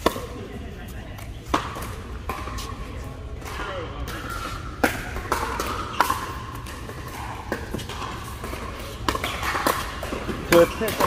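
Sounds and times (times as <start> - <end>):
murmur of indoor hall: 0.0 - 11.0.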